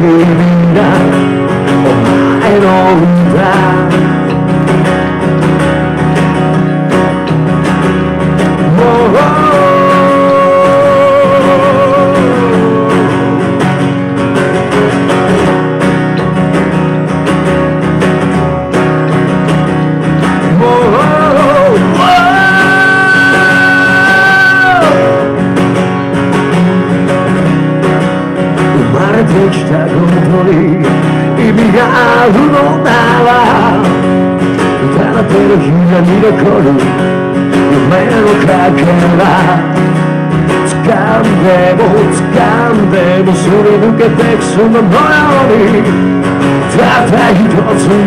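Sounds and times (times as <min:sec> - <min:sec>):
person singing: 0:00.0 - 0:04.5, 0:08.3 - 0:14.0, 0:20.2 - 0:25.6, 0:28.6 - 0:48.0
electric bass: 0:00.0 - 0:48.0
strummed acoustic guitar: 0:00.0 - 0:48.0.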